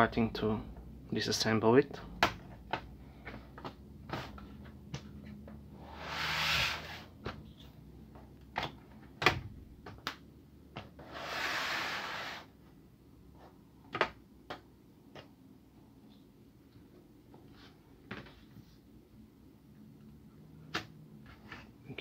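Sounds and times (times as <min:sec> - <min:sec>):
pry tool scraping along seam: 0:05.8 - 0:07.1.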